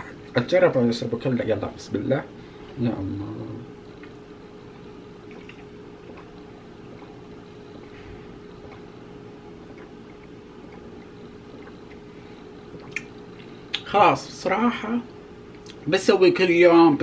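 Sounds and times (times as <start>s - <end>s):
steady low hum: 0.0s - 17.0s
person gulping juice: 5.2s - 13.9s.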